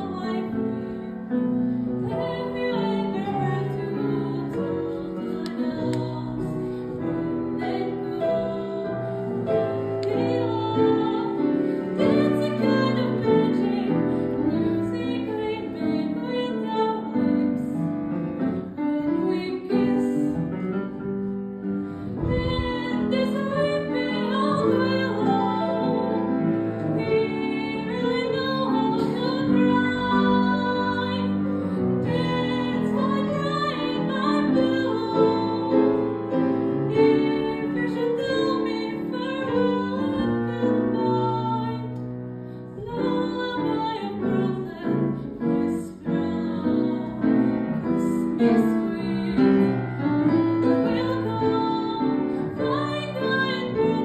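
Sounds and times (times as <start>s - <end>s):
girl singing: 2.1s - 6.5s, 22.2s - 26.1s.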